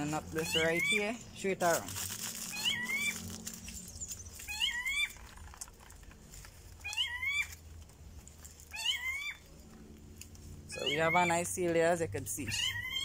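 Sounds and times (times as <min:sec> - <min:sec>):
animal mewing call: 0:02.5 - 0:03.3, 0:08.7 - 0:09.5, 0:10.7 - 0:11.4, 0:12.5 - 0:13.0.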